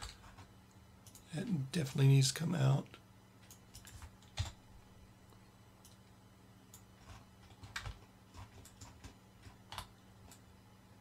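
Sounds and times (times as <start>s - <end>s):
keyboard and mouse clicks: 0.0s - 1.3s, 3.4s - 4.6s, 5.8s - 6.1s, 6.7s - 10.5s
faint low hum: 0.0s - 11.0s.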